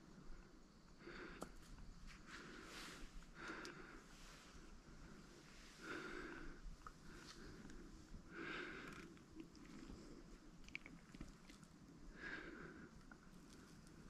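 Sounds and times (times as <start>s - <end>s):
person breathing softly: 1.0s - 14.0s
faint ticks: 3.4s - 3.8s, 8.5s - 12.0s.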